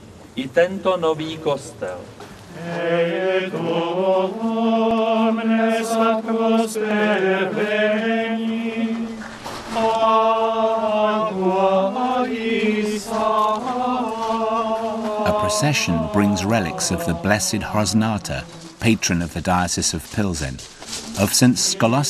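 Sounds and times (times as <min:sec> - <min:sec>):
men singing a chant in unison: 0:02.5 - 0:18.8, 0:21.1 - 0:22.0.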